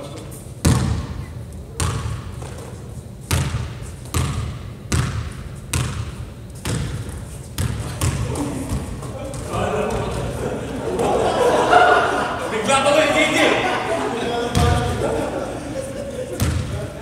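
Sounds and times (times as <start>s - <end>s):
basketball bouncing on wooden floor: 0.6s - 1.2s, 3.3s - 10.0s.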